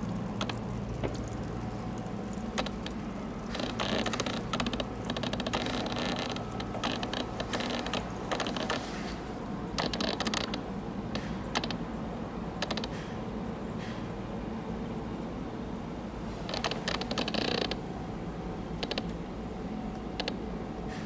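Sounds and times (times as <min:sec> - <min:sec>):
aquarium pump humming: 0:00.0 - 0:12.6.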